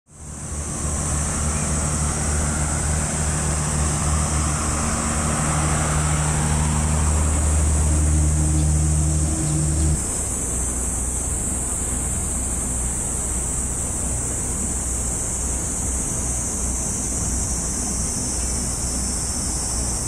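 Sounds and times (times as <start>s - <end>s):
high-pitched hiss: 0.1s - 20.0s
low rumble: 0.4s - 10.0s.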